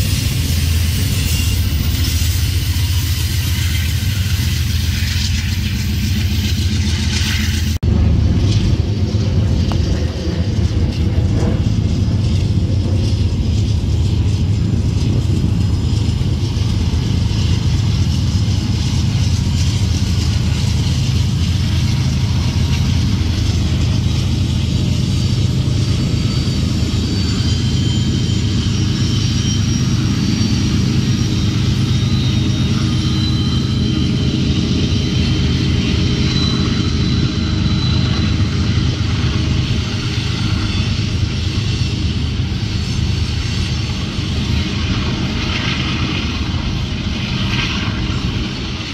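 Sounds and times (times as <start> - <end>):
diesel locomotives rumbling: 0.0 - 48.9
faint high-pitched squeals: 11.7 - 48.9.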